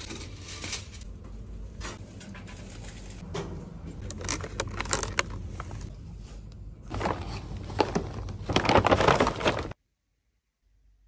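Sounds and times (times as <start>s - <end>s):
plastic packaging crinkling: 4.0s - 5.9s, 6.9s - 9.8s
paper bag rustling: 6.9s - 9.8s.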